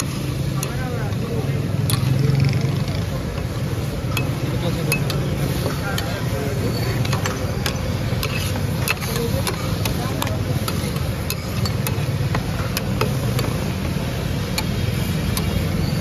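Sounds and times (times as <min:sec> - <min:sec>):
street traffic rumble: 0:00.0 - 0:16.0
metal spatulas clinking on iron pan: 0:04.1 - 0:13.6.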